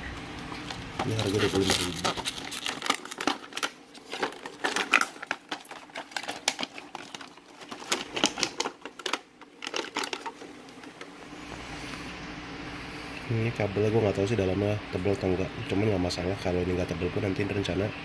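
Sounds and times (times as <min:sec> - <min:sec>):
stiff plastic packaging clicking: 0:00.3 - 0:11.2.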